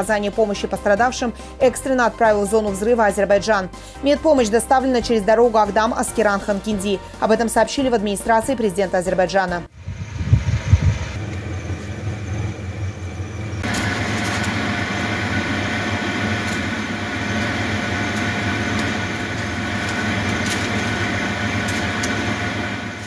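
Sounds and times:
heavy low thumps: 9.7 - 12.4
road noise: 9.7 - 23.0
van engine running: 9.8 - 23.0.

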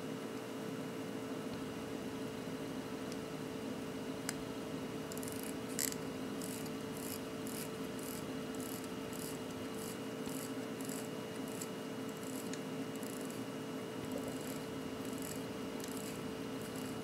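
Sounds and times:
wristwatch alarm buzzing: 5.2 - 13.4.

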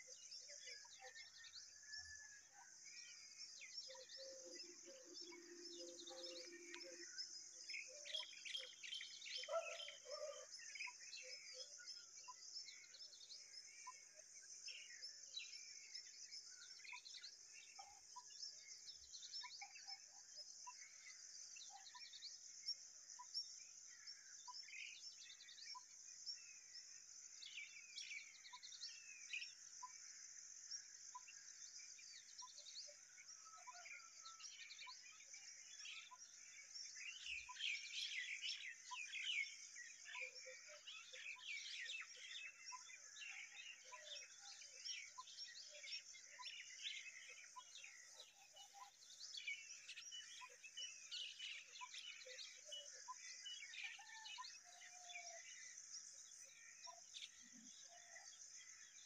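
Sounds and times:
small birds chirping: 30.8 - 59.0.

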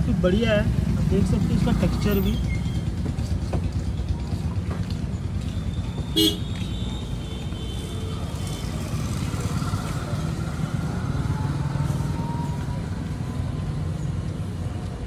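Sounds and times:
street traffic rumble: 0.0 - 15.0
car horn beep: 5.6 - 8.2.

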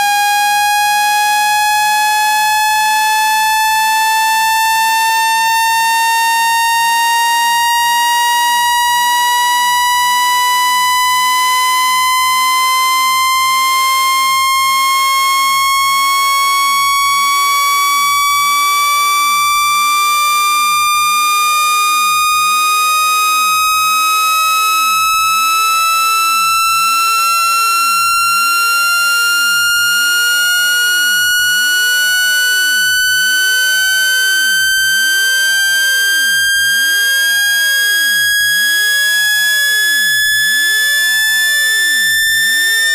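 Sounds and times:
rising electronic test tone: 22.0 - 42.9.

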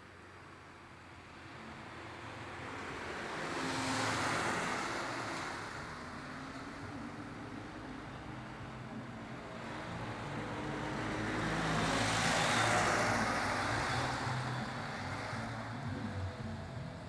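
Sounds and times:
vehicle engine passing: 9.6 - 17.0.

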